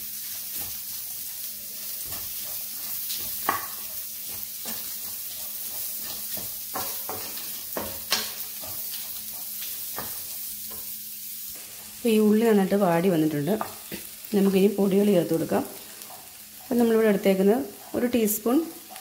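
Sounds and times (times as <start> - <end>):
food sizzling in oil: 0.0 - 19.0
spatula scraping pan: 0.5 - 11.0, 15.3 - 19.0.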